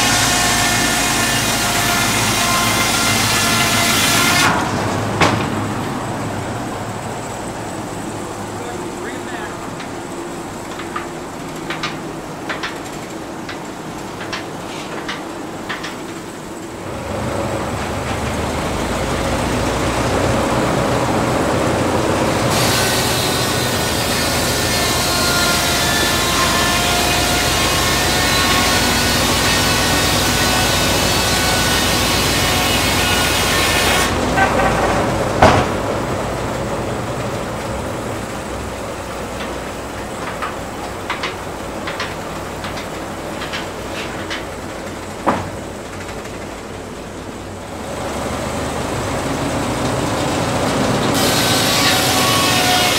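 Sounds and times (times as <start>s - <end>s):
circular saw cutting log: 0.0s - 6.0s, 6.6s - 52.9s
sawmill machinery rumble: 0.0s - 52.9s
scattered clanks: 2.4s - 6.0s, 8.4s - 16.8s, 39.0s - 46.9s
loud knock: 4.4s - 5.8s, 34.4s - 36.0s, 45.2s - 45.6s.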